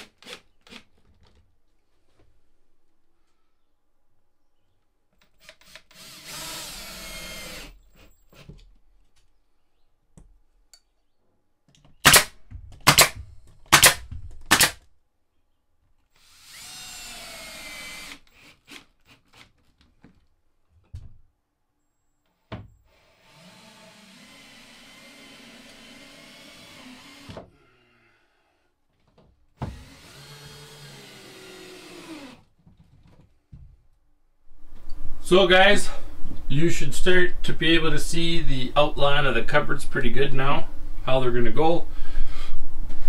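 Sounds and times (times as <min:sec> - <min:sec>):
power drill running: 0:05.4 - 0:08.2, 0:16.2 - 0:19.4, 0:22.9 - 0:27.4, 0:29.7 - 0:32.4.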